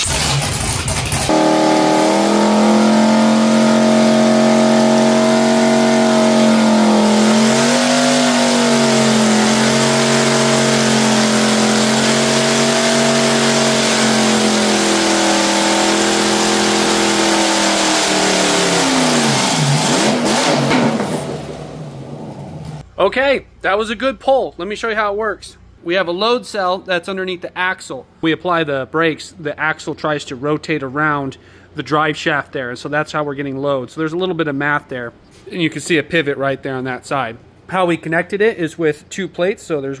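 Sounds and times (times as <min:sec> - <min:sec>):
engine running hard: 0:00.0 - 0:22.8.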